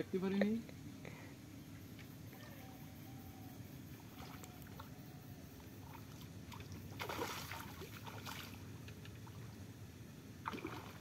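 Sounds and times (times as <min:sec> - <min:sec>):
fish splashing in pond: 0:04.0 - 0:05.0, 0:05.7 - 0:09.6, 0:10.4 - 0:11.0.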